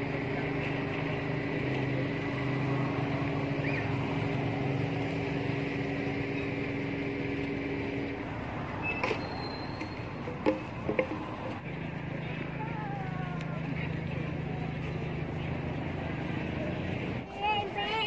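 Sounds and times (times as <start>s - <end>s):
steady motor hum: 0.0s - 8.8s.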